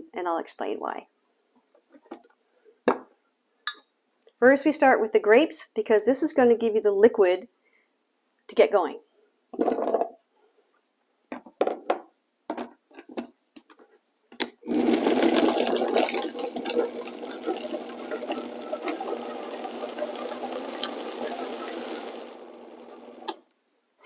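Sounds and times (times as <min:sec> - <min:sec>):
blender motor running: 0:14.7 - 0:23.3.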